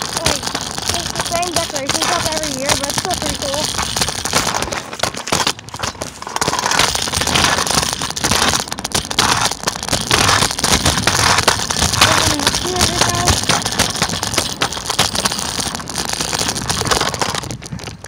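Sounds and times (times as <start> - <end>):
scooter wheel noise: 0.0 - 18.0
wind buffeting microphone: 0.0 - 18.0.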